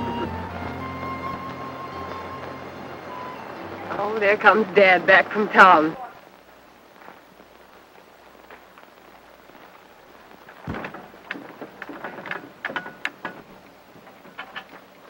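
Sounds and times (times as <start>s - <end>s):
faint hiss: 0.0s - 15.0s
wood creaking: 9.5s - 15.0s
knocks and clatters in wagon: 10.4s - 15.0s.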